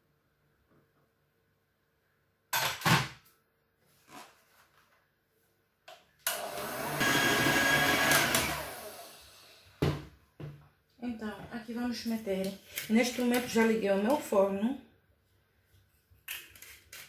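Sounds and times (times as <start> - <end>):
electric hand mixer whirring: 6.3 - 9.5.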